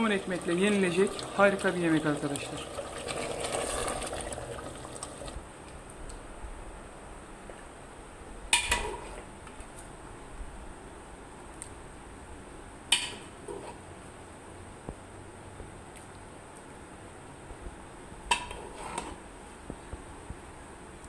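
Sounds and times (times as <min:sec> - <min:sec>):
spoon stirring thick curry: 0:18.3 - 0:19.2.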